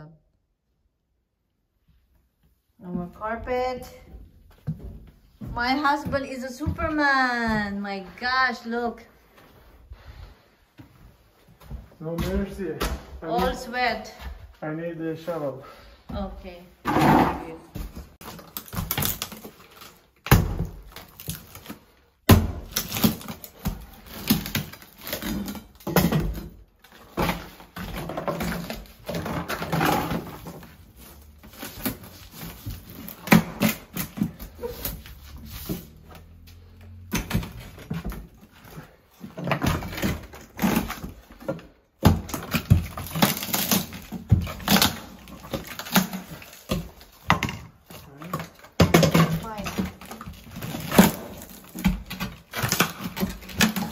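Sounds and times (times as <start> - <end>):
rubble scraping on wood: 16.8 - 17.6.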